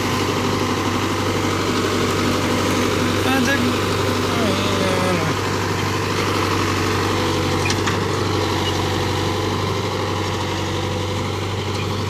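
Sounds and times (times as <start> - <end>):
tractor diesel engine under load: 0.0 - 12.0.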